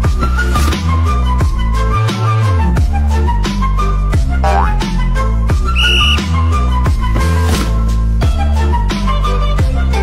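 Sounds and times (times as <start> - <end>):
deep bass beat: 4.4 - 5.1
flute-like melody: 4.4 - 6.6.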